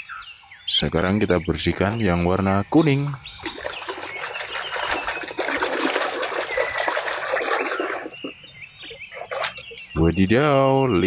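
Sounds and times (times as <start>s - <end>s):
water splashing and rushing: 3.4s - 9.8s.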